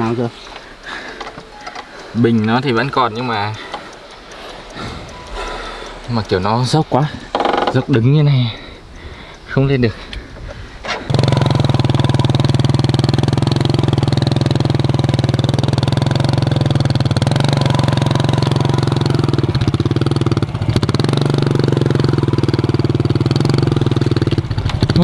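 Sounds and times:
small motorcycle engine running: 11.0 - 25.0.

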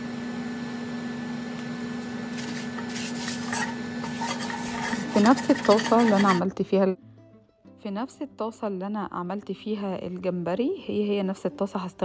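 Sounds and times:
steady background hum: 1.5 - 6.4
paper towel wiping frying pan: 2.3 - 6.4.

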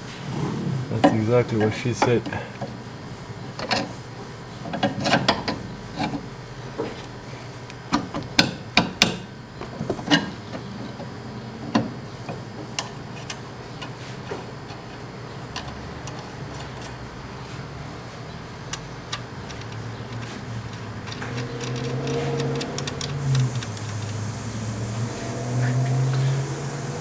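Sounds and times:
steady low hum: 0.0 - 27.0
metal clicks and knocks: 18.7 - 23.7.

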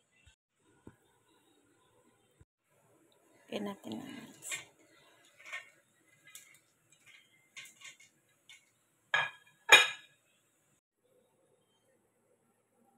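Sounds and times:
dishware clinking together: 9.2 - 10.2.

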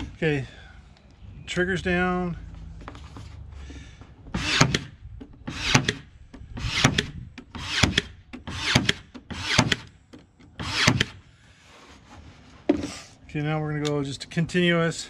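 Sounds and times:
nail gun firing: 4.4 - 4.9, 5.5 - 9.9, 10.6 - 11.2.

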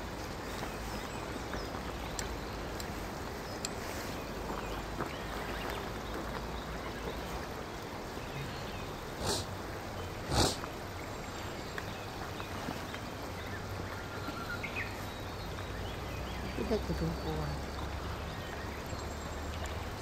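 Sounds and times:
faint ticks: 1.5 - 3.8.

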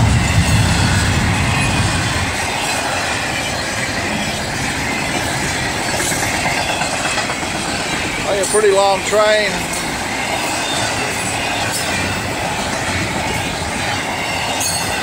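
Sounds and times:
freight cars rattling: 0.0 - 15.0
steel wheels running on rails: 0.0 - 15.0.

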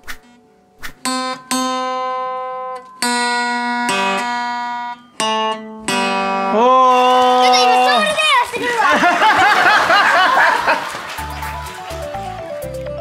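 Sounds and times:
acoustic guitar strummed slowly: 0.2 - 7.6.

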